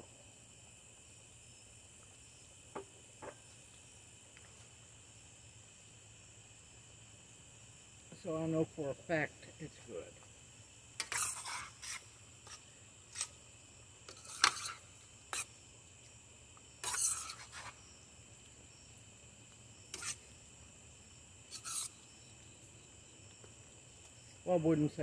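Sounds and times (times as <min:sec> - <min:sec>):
crickets chirring: 0:00.0 - 0:25.0
metal spoon scraping a skillet: 0:11.0 - 0:13.4, 0:14.1 - 0:15.5, 0:16.8 - 0:17.8, 0:19.9 - 0:20.2, 0:21.5 - 0:22.0.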